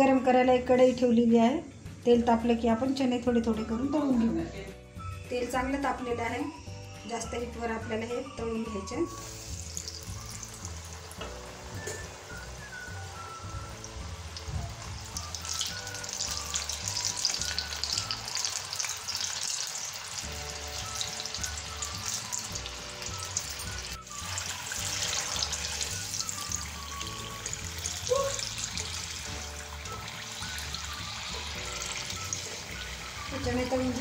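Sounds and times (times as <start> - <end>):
background music with low beat: 0.0 - 18.6, 20.2 - 34.0
chickpeas deep-frying in oil: 8.5 - 34.0.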